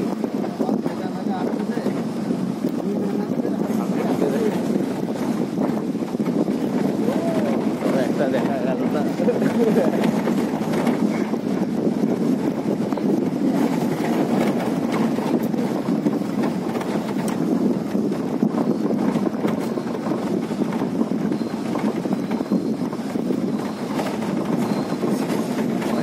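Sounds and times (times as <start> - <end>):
engine and tyres rumbling: 0.0 - 26.0
wind buffeting microphone: 0.0 - 26.0.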